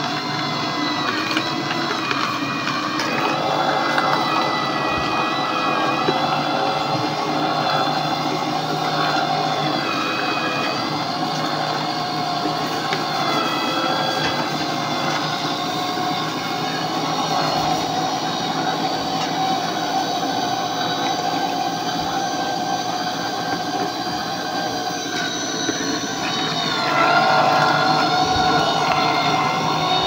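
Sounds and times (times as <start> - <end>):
electric juicer grinding: 0.0 - 30.0
wavering high-pitched tones: 24.5 - 30.0.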